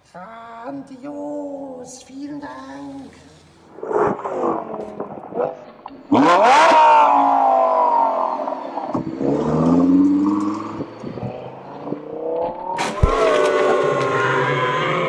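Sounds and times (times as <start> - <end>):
car engine revving hard: 5.3 - 15.0.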